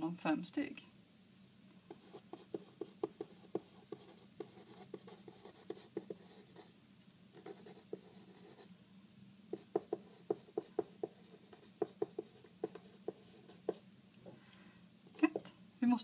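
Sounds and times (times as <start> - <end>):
pen writing on paper: 1.9 - 6.7, 7.4 - 8.7, 9.6 - 13.8.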